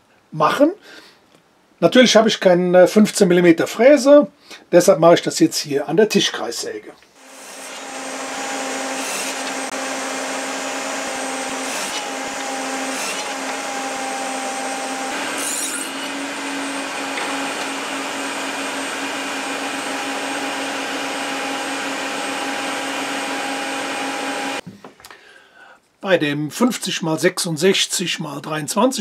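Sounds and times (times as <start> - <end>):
saw cutting wood: 7.2 - 24.6
table saw running: 7.2 - 24.6.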